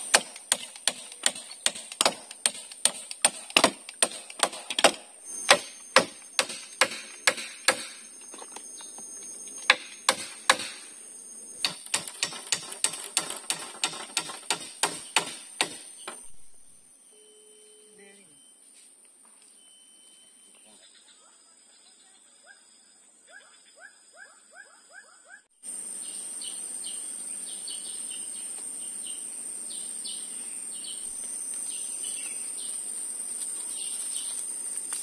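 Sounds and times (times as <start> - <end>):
hammer driving nails into wood: 0.0 - 8.0, 9.7 - 10.8, 11.6 - 16.2.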